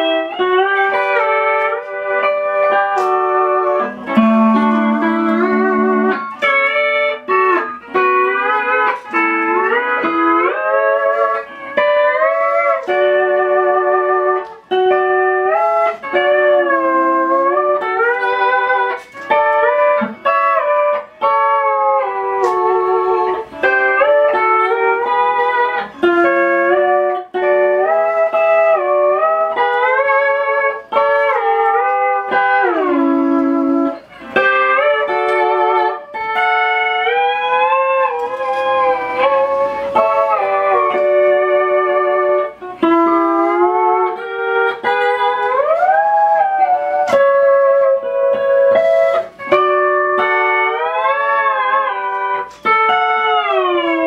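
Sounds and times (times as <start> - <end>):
pedal steel guitar chords: 0.0 - 54.0.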